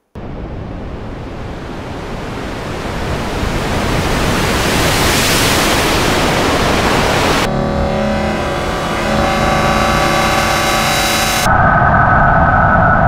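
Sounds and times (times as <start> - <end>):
synthesized rushing hiss: 7.4 - 11.5.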